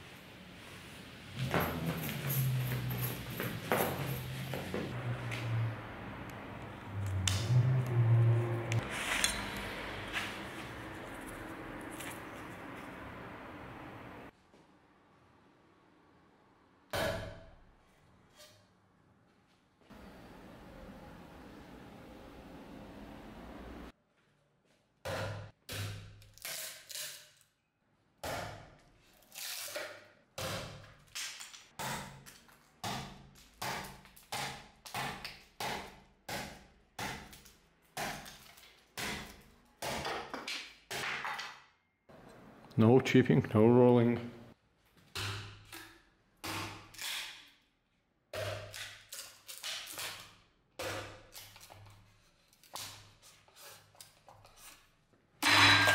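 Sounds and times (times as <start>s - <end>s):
knife chopping wooden block: 32.8s - 37.4s
knife chopping into wood: 46.4s - 47.0s, 50.8s - 51.3s.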